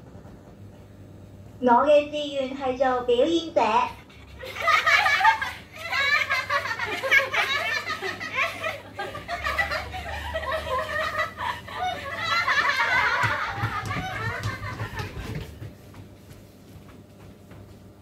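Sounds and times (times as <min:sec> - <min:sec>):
women laughing and chatting: 0:04.2 - 0:15.2.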